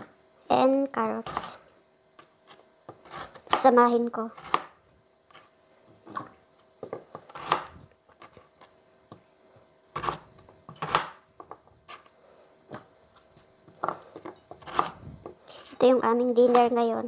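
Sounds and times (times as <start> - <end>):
knife chopping on cutting board: 4.4 - 4.7, 6.1 - 7.8, 10.0 - 12.0, 13.8 - 15.0.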